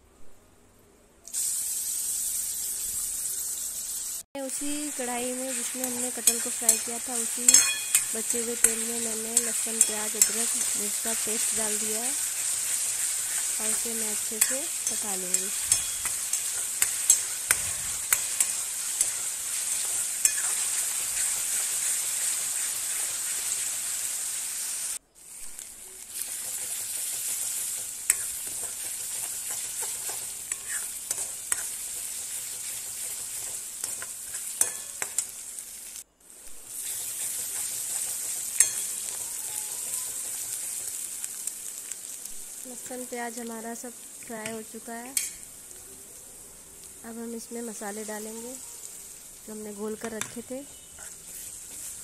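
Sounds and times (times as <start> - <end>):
paste sizzling in hot oil: 1.3 - 52.0
steel spoon scraping pan: 5.4 - 23.8, 25.6 - 35.4, 36.7 - 41.4, 50.2 - 52.0.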